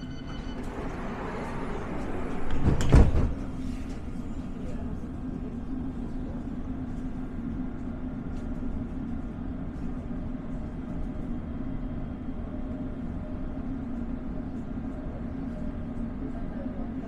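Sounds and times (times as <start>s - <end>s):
train equipment humming: 0.0s - 17.0s.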